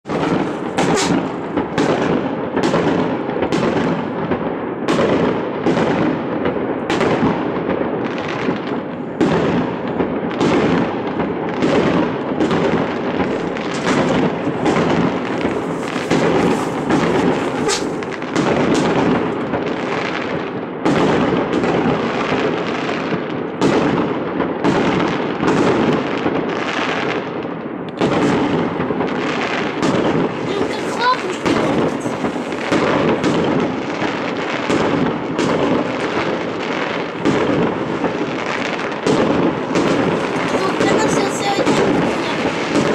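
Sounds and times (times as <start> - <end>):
fireworks bursting with sharp bangs: 0.0 - 42.9.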